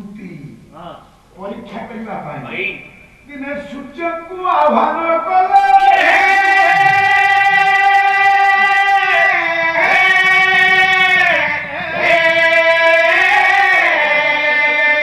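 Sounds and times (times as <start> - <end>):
high voice singing ballad: 3.4 - 15.0.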